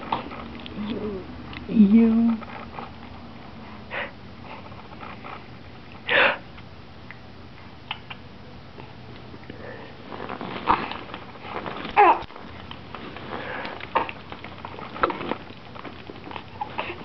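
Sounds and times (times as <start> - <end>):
faint rustles: 8.8 - 17.0.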